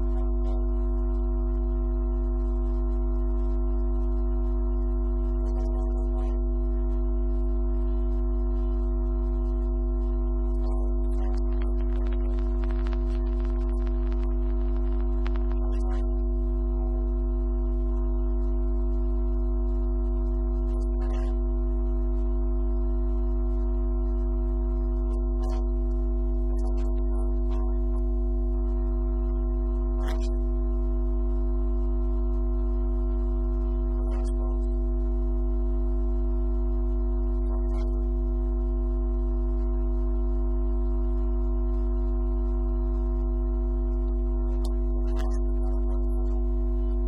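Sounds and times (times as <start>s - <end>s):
steady drone of held tones: 0.0s - 47.0s.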